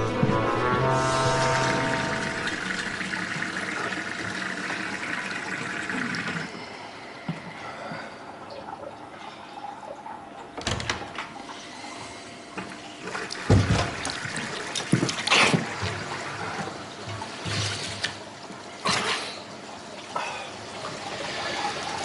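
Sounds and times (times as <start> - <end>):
tap running into washbasin: 12.5 - 18.6.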